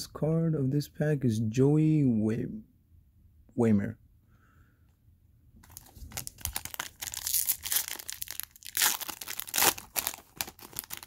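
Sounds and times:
foil wrapper crinkling and tearing: 0:05.6 - 0:11.0.

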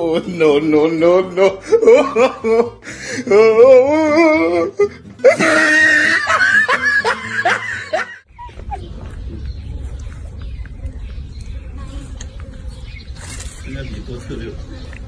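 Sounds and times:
person laughing hard: 0:01.2 - 0:08.8.

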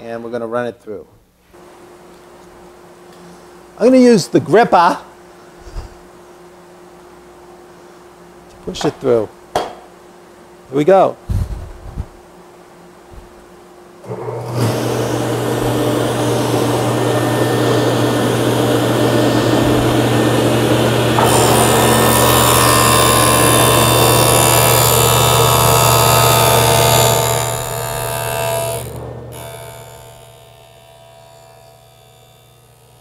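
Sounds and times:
table saw running: 0:14.0 - 0:33.0
saw blade cutting wood: 0:14.5 - 0:33.0.

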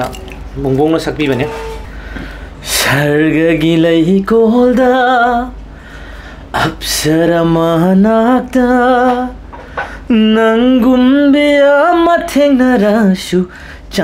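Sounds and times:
man singing unaccompanied: 0:02.6 - 0:05.6, 0:06.5 - 0:09.4, 0:10.1 - 0:14.0.

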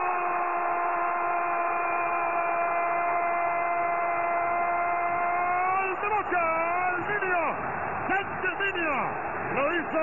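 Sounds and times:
stadium crowd noise: 0:00.0 - 0:10.0.

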